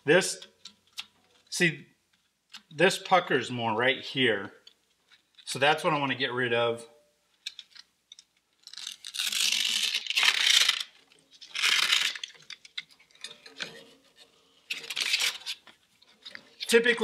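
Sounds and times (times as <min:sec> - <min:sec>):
hook-and-loop backing ripping: 0:08.6 - 0:17.0.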